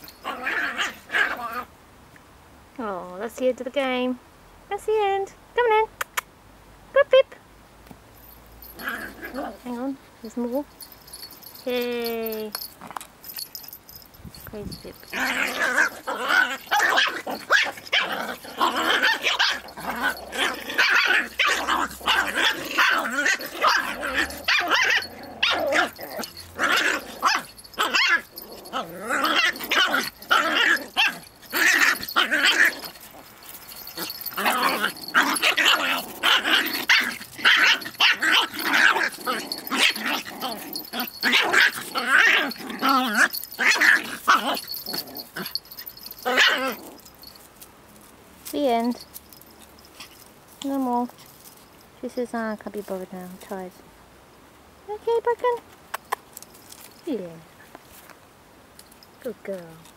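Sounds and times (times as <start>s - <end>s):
dogs growling: 0.0s - 1.7s, 8.6s - 9.7s, 15.0s - 47.3s
dogs barking: 33.7s - 47.0s.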